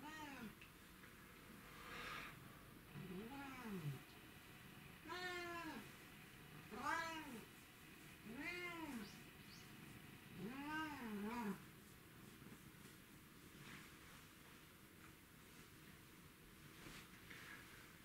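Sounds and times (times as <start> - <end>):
cat meowing: 5.0 - 5.8, 6.7 - 7.4, 8.2 - 9.2, 10.4 - 11.6.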